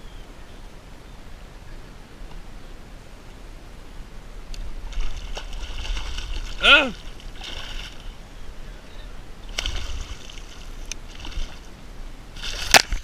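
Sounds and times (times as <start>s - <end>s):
water splashing against kayak hull: 4.6s - 8.2s, 9.5s - 13.0s.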